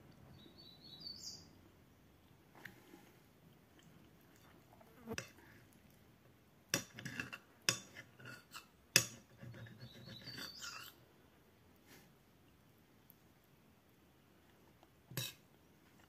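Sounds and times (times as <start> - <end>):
metal spoon clinking on plate: 6.8 - 9.5.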